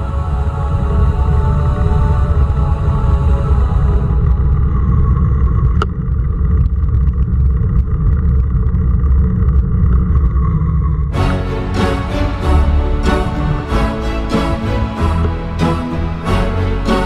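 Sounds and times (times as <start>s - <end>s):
background music: 0.0s - 4.2s, 11.1s - 17.0s.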